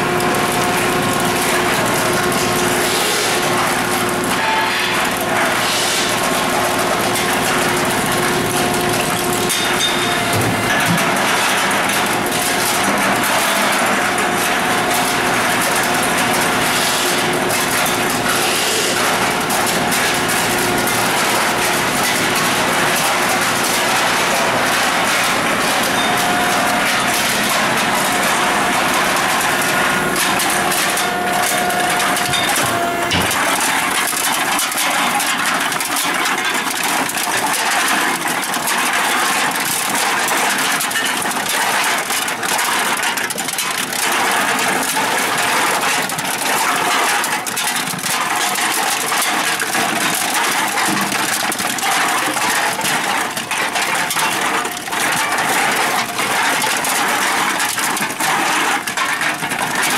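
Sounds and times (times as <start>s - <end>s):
cans clattering and crushed: 0.0s - 59.9s
machine humming: 7.4s - 34.7s.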